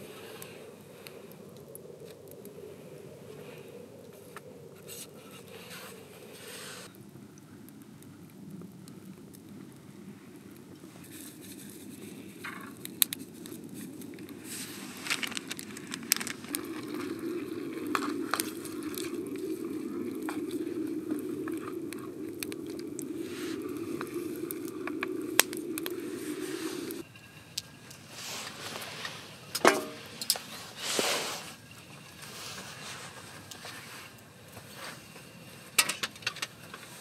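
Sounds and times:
wood fire pops and crackles: 0.0 - 37.0
food bubbling in oil: 12.5 - 28.1.

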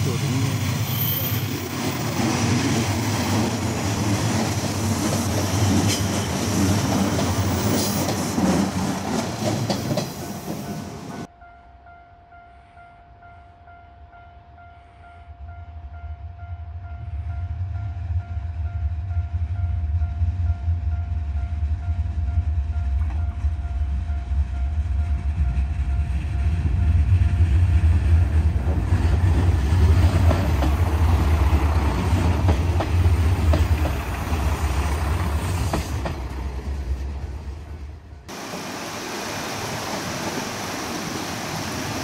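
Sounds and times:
train wheels clattering over rail joints: 2.0 - 11.0, 28.6 - 36.6.

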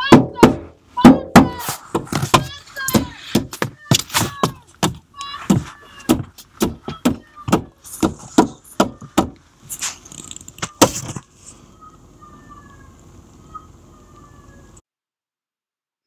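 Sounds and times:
sharp knocks and thumps: 0.0 - 11.3.

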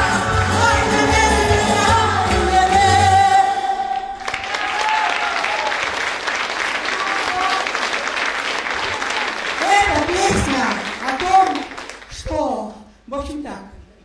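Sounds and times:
band playing: 0.0 - 3.8
woman singing: 0.0 - 4.2
audience applause: 4.2 - 12.1.

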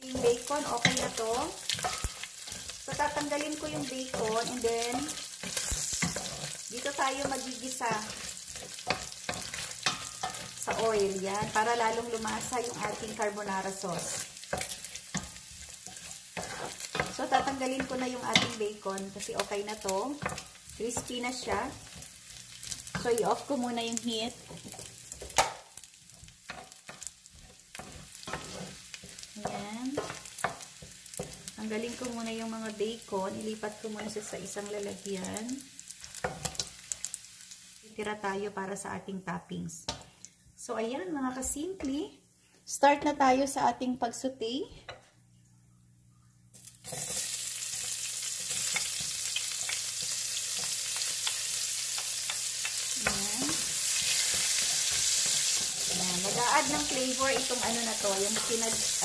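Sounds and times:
wooden spoon scraping a pot: 0.0 - 18.7, 26.5 - 31.6
bacon sizzling in fat: 0.0 - 38.5, 46.5 - 59.0.

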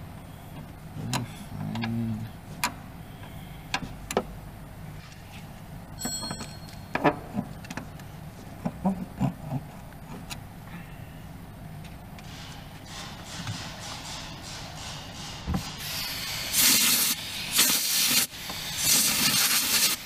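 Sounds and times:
steady low hum: 0.0 - 17.6
short metallic ring: 6.0 - 6.9.

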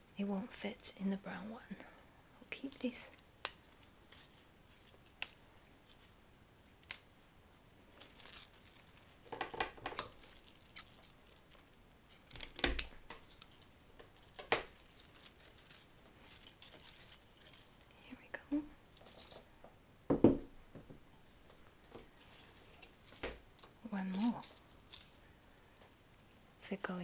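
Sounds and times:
scissors snipping stems: 5.0 - 5.4, 6.8 - 7.1.

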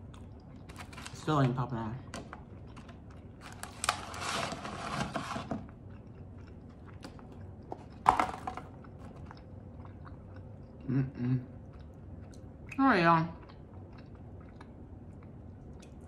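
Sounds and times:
cardboard carton rustling: 3.6 - 5.6.

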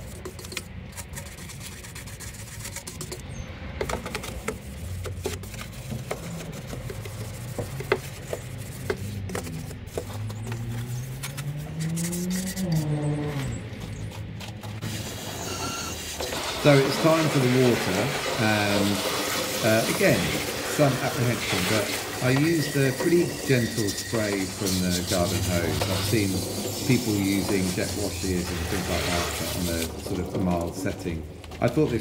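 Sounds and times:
rubbing and scraping: 0.0 - 32.0
low hum gliding in pitch: 10.3 - 14.4.

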